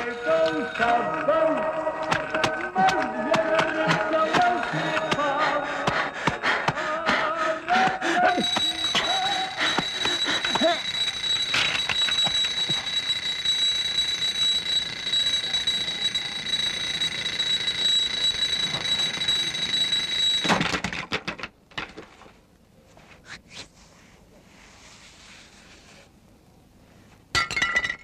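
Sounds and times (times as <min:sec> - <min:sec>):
mechanical alarm clock ringing: 0:03.0 - 0:06.2, 0:07.8 - 0:20.6.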